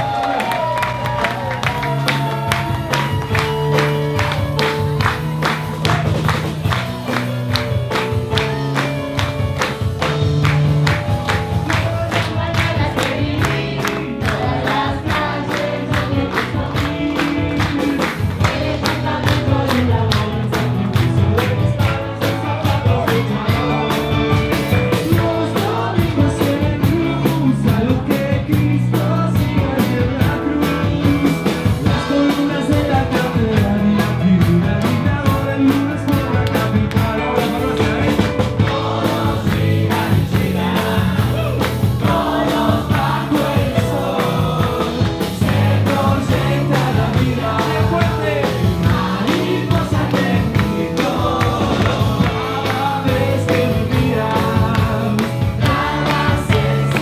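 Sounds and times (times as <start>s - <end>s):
drums: 0.0s - 57.0s
person singing: 11.6s - 57.0s.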